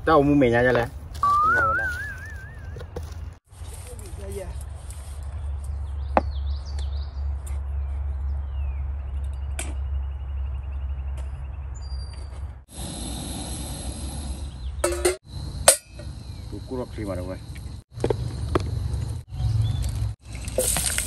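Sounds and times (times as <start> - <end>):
gas stove hissing: 12.7 - 14.9.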